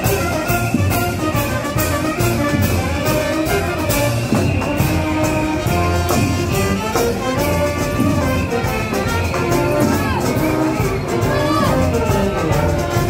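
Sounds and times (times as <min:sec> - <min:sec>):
street band playing: 0:00.0 - 0:13.0.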